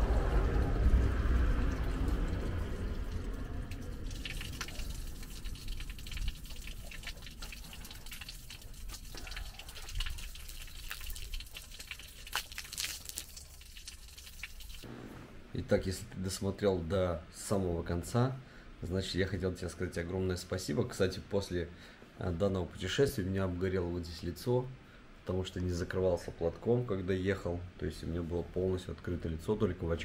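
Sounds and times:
water rushing: 0.0 - 10.8
water drips and splashes: 0.0 - 14.9.

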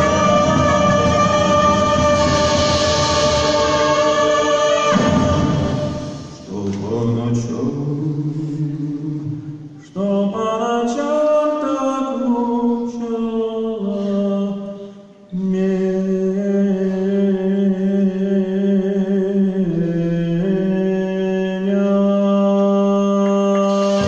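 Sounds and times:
man singing long held notes: 0.0 - 24.0.

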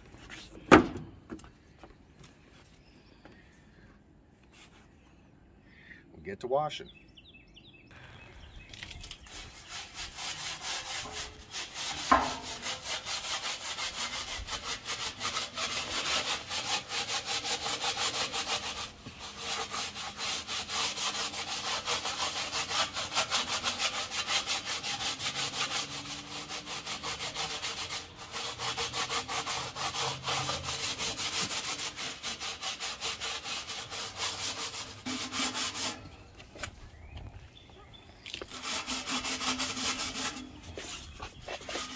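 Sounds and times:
scrubbing steel: 8.7 - 36.2, 38.4 - 41.9.

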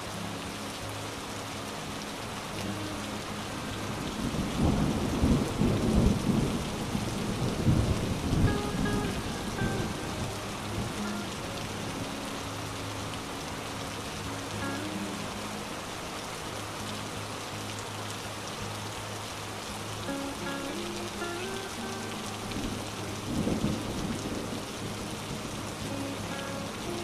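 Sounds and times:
heavy rain on street: 0.0 - 27.0
thunder rumble: 4.0 - 12.1, 20.4 - 27.0.

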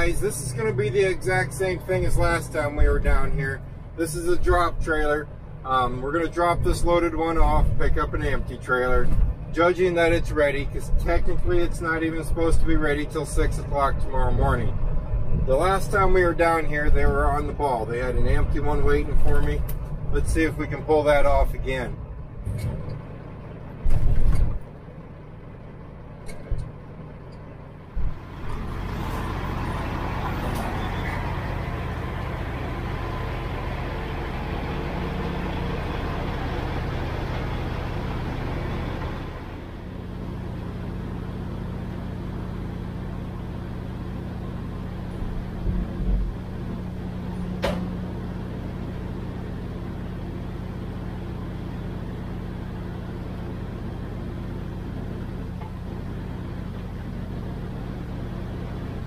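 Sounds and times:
diesel engine running: 0.0 - 59.0
thump: 23.8 - 24.6, 47.6 - 48.0.

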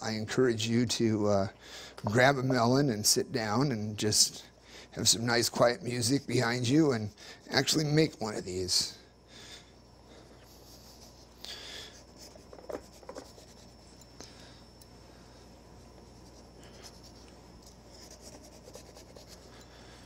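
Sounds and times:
knife scraping melon rind: 16.1 - 19.6.

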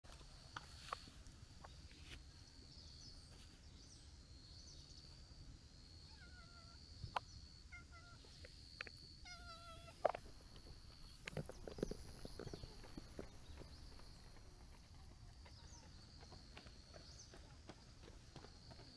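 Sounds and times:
cat meowing: 6.1 - 6.8, 7.7 - 8.3, 9.2 - 10.0.

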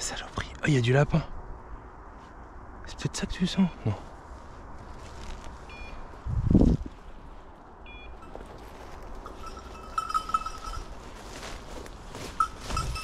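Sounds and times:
low rustle: 3.9 - 7.6, 8.2 - 13.0
dog bell jingling: 9.1 - 11.6, 12.2 - 13.0
high clinks: 9.1 - 11.6, 12.2 - 13.0.

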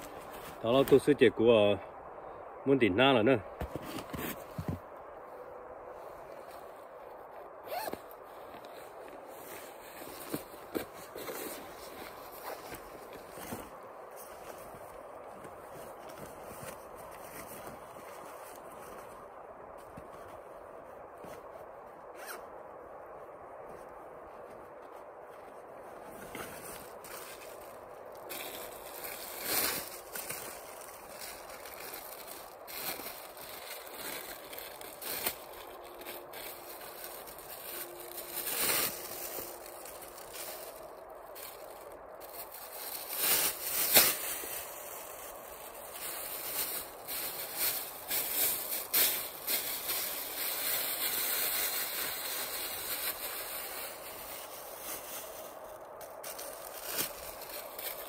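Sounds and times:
footsteps crunching on snow: 0.0 - 1.2, 3.6 - 4.9, 5.9 - 22.0, 23.6 - 58.0
plastic bag crinkling: 26.9 - 58.0.

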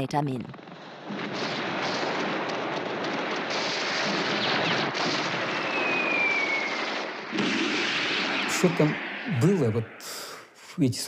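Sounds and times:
dense gunfire and blasts: 0.0 - 10.0
falling whistle: 5.4 - 7.2.

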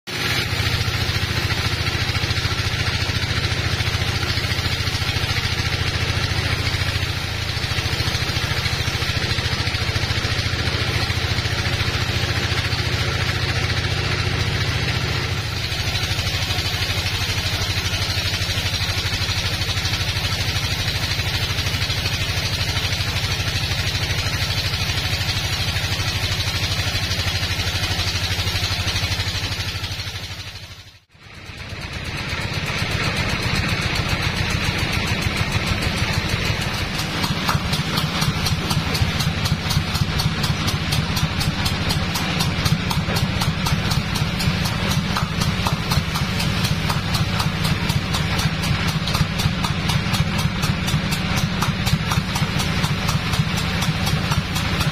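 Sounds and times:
sawmill machine drone: 0.0 - 54.9
saw blade hissing in wood: 14.6 - 30.9.

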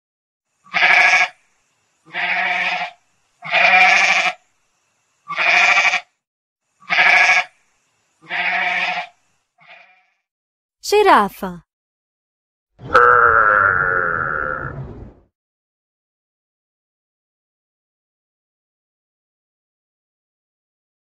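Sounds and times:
goat bleating: 0.7 - 1.3, 2.1 - 4.4, 5.3 - 6.1, 6.8 - 7.5, 8.2 - 10.1.

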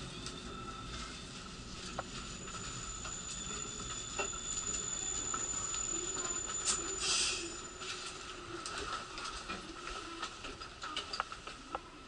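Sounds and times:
thin high tone: 1.9 - 8.3.

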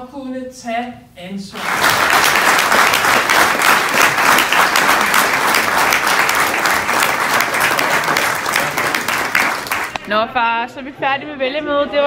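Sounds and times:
audience applauding: 1.6 - 10.1.

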